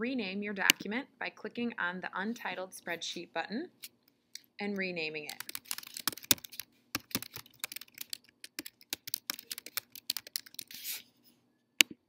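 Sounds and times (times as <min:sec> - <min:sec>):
keyboard key clicks: 0:05.3 - 0:10.7.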